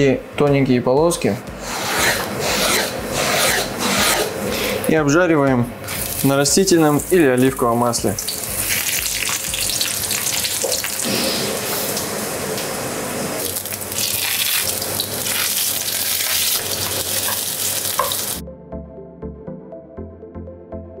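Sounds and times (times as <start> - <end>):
vegetables sizzling in oil: 5.9 - 18.4.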